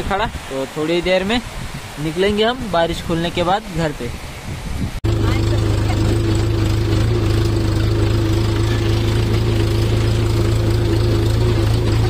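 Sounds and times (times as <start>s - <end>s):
tractor diesel engine droning: 5.0s - 12.0s.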